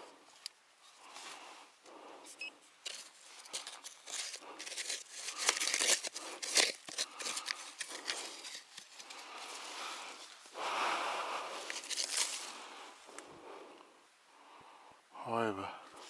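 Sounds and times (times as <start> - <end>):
pinpointer scraping through dry soil: 2.2 - 10.6, 11.2 - 12.7.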